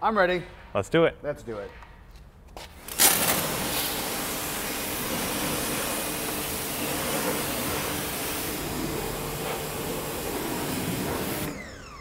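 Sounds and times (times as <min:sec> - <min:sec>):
pressure washer spray hiss: 0:02.9 - 0:11.5.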